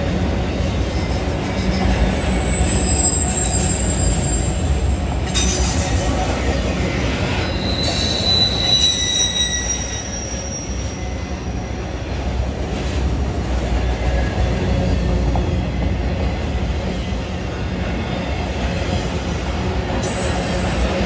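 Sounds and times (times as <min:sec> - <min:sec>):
freight train wheels rumbling: 0:00.0 - 0:21.0
high-pitched wheel squeals: 0:00.8 - 0:11.9, 0:20.0 - 0:21.0.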